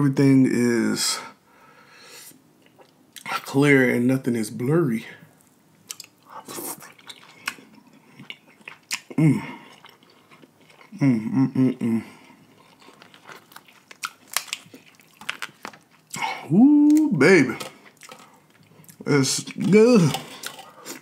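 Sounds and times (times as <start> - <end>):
wet chewing and lip-smacking: 5.8 - 11.0, 12.3 - 16.2, 16.9 - 21.0
person humming mmm: 9.1 - 9.7, 10.9 - 12.2, 16.2 - 17.2
crab shell cracking: 12.8 - 16.1.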